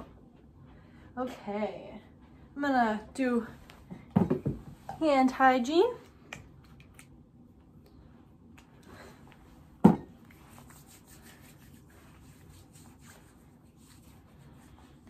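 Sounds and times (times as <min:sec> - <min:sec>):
hands rubbing together: 0:10.3 - 0:15.0.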